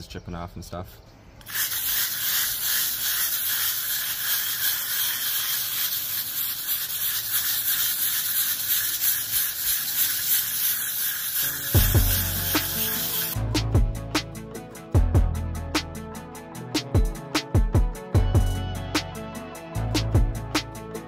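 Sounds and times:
wire brush scraping a wall: 0:01.4 - 0:13.4.

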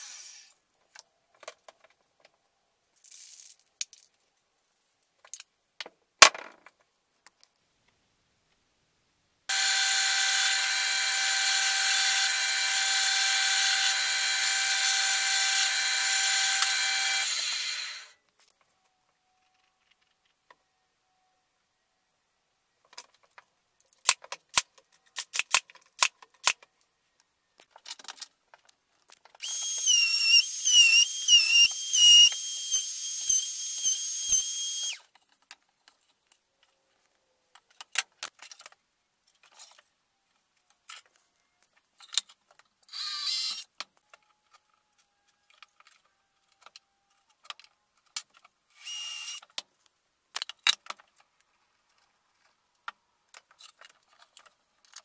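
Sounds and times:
power tool whining: 0:09.5 - 0:18.1, 0:29.4 - 0:35.0.

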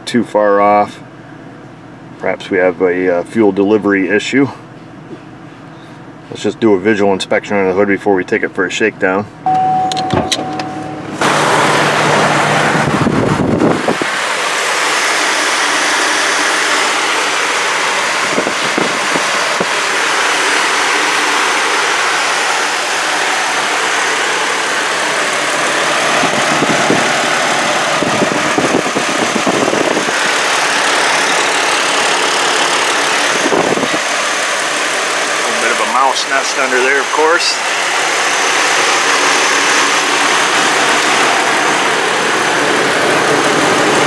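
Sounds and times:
car engine idling: 0:09.4 - 0:44.0.

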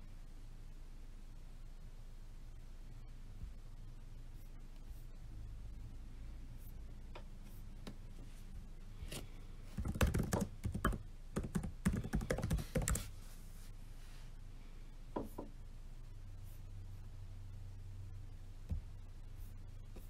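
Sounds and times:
typing on a laptop keyboard: 0:09.8 - 0:13.1.

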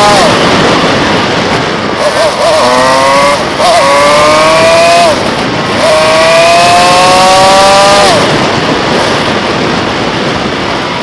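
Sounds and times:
motorcycle engine accelerating: 0:00.0 - 0:11.0
wind noise: 0:00.0 - 0:11.0.

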